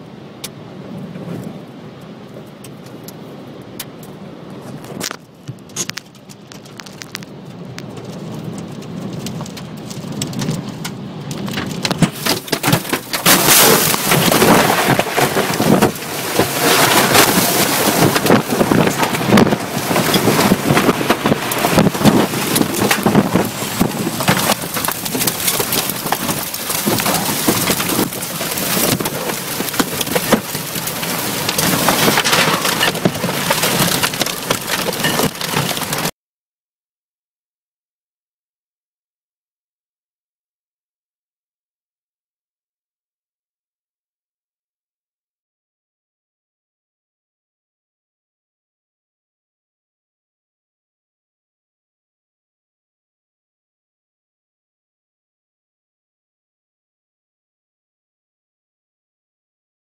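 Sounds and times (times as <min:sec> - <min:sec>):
rain and debris hitting a car: 0:00.5 - 0:36.2
wind rushing: 0:13.4 - 0:32.3.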